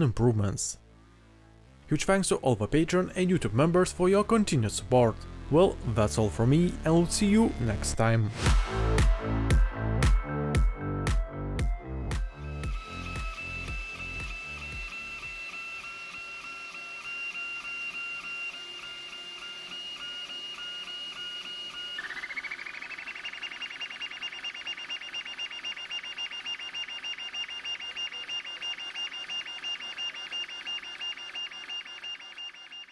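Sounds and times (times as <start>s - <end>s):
printer stepper motors whining: 12.5s - 32.9s.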